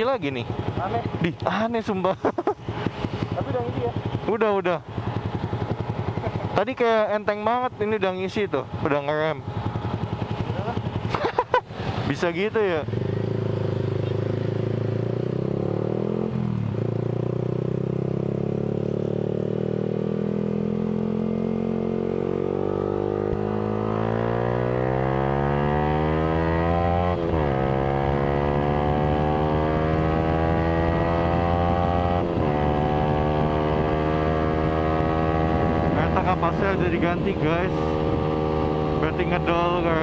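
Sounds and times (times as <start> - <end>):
motorcycle engine accelerating: 0.0 - 40.0.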